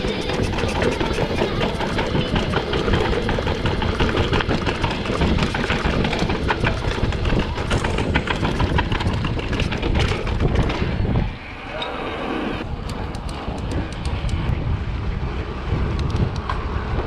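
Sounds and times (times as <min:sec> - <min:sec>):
bike rattles and clicks: 0:00.0 - 0:11.4, 0:12.6 - 0:17.0
bike rumble over rough ground: 0:00.0 - 0:11.4.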